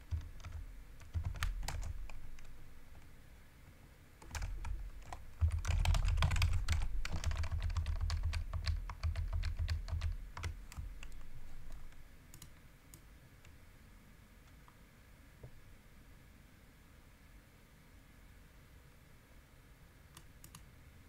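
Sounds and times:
typing on computer keyboard: 0:00.0 - 0:02.5, 0:04.2 - 0:11.3, 0:20.2 - 0:20.6.

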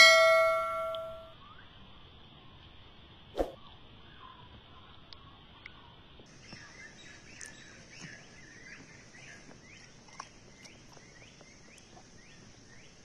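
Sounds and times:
bird chirping: 0:03.4 - 0:13.0
mango being chewed: 0:09.9 - 0:12.3.

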